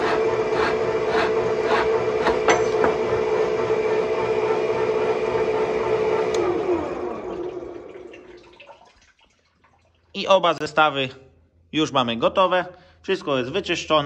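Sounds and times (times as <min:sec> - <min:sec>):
angle grinder whining: 0:00.0 - 0:07.8.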